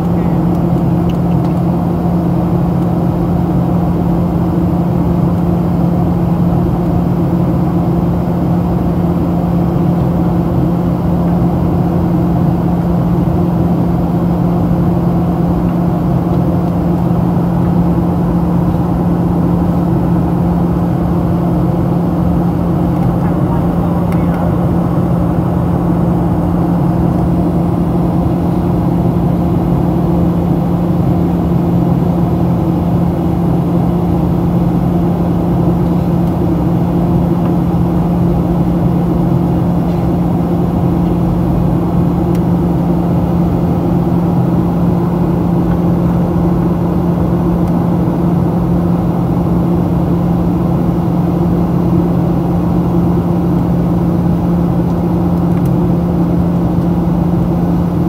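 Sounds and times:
constant hum: 0:00.0 - 0:58.0
jet engine drone: 0:00.0 - 0:58.0.

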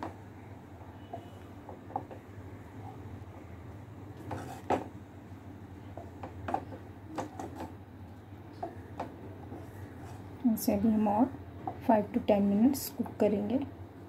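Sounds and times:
spoon scraping steel saucepan: 0:04.3 - 0:04.7.

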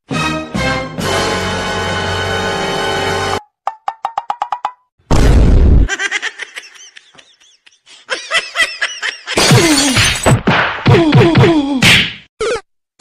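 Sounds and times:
loud crash: 0:05.1 - 0:05.9.

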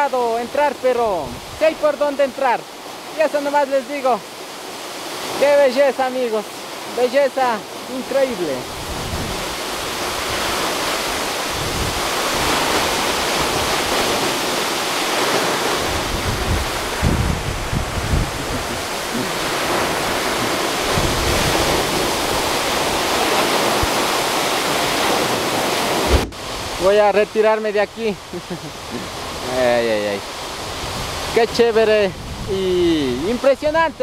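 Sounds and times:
waterfall rushing: 0:00.0 - 0:34.0
wind buffeting microphone: 0:08.6 - 0:26.9, 0:30.4 - 0:34.0.

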